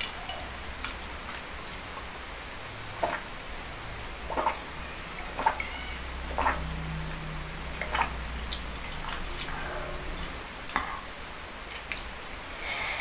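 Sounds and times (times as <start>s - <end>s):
person drinking and swallowing: 3.0s - 3.3s.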